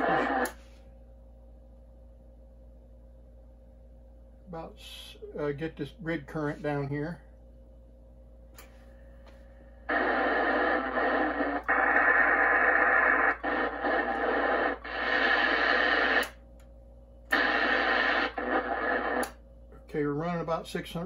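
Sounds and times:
radio static hiss: 0.0 - 0.7, 9.9 - 16.4, 17.3 - 19.4.

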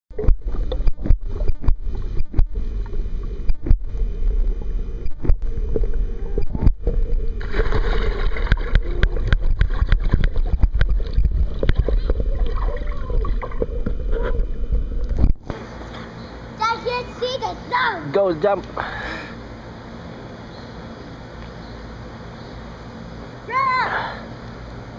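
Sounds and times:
sharp underwater clicks and knocks: 0.1 - 3.8, 5.0 - 15.6
bubbling and gurgling: 0.1 - 15.5
muffled underwater rumble: 0.1 - 15.5
swimmer plunging into water: 5.6 - 15.0.

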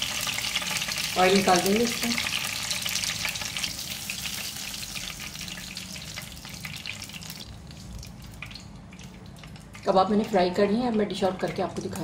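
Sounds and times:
hot oil sizzling and crackling: 0.0 - 12.0.

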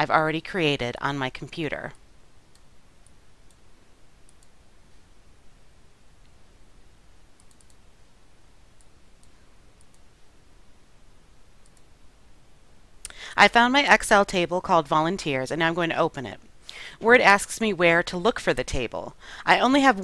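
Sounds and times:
low room hum: 0.0 - 20.0
computer mouse clicks: 4.2 - 4.6, 7.4 - 7.8, 8.8 - 10.1, 11.6 - 11.9.

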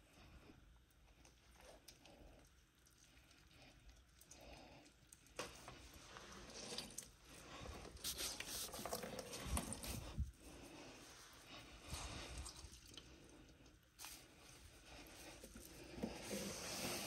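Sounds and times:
wet rubbing: 5.6 - 13.1.

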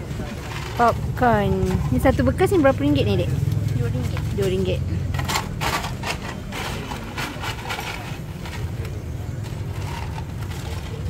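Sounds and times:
plastic bag scraping through popcorn: 0.0 - 2.0, 5.0 - 11.0.

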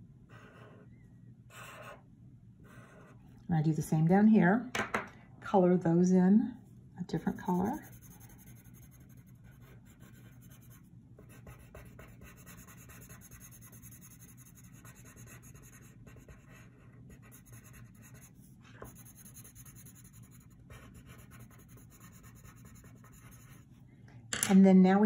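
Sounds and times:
colored pencil scratching on paper: 0.3 - 0.9, 1.5 - 2.0, 2.6 - 3.2, 7.2 - 23.6.

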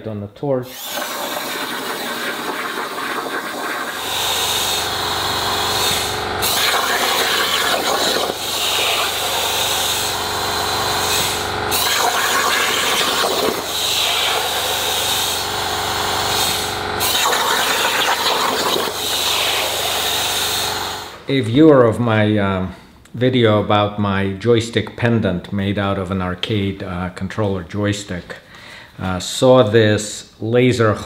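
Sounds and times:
plasma torch hissing: 0.6 - 21.2.

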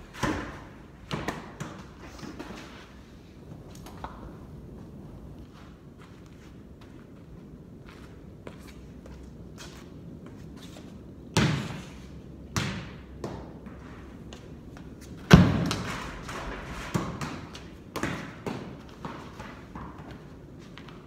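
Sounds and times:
ball bouncing on concrete: 0.1 - 1.9, 12.5 - 20.2.

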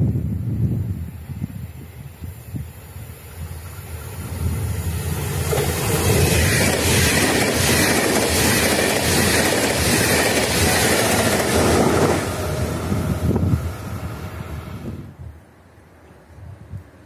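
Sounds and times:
train wheels rumbling on rails: 0.1 - 15.1.

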